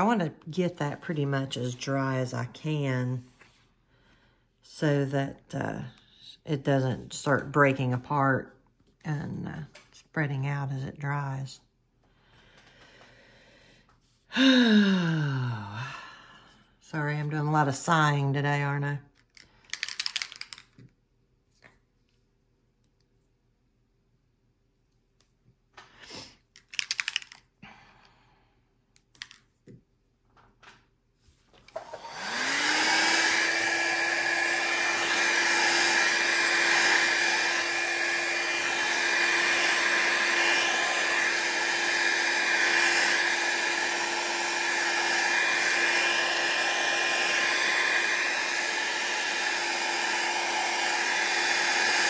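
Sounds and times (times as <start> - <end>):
hair dryer motor whine: 0.0 - 2.1, 31.6 - 52.0
soft clicks and handling noise: 19.1 - 22.2, 26.5 - 27.5, 28.9 - 30.8.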